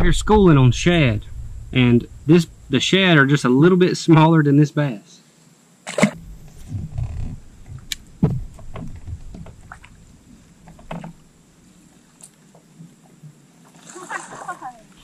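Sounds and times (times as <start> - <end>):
thuds and knocks on boat deck: 6.2 - 11.3
faint clicks: 6.5 - 10.0.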